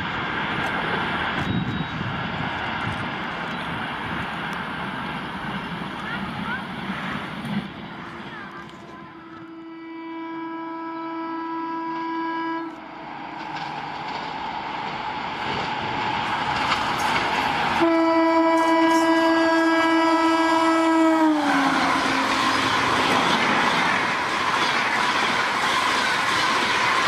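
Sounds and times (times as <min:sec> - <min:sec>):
train rushing past: 0:00.0 - 0:10.6, 0:11.2 - 0:27.0
locomotive horn blasts: 0:08.8 - 0:12.8, 0:17.8 - 0:23.0.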